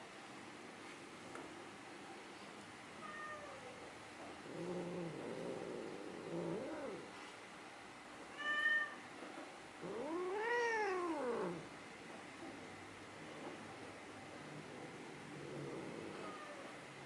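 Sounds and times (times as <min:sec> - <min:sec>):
cat meowing: 0:08.3 - 0:09.0, 0:09.8 - 0:11.6.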